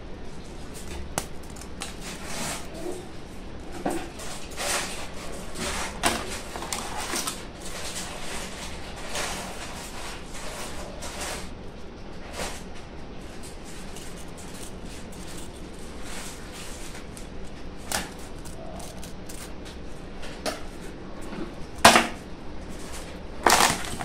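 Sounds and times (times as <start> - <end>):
biscuits rustling in fingers: 13.3 - 19.9, 22.7 - 24.0.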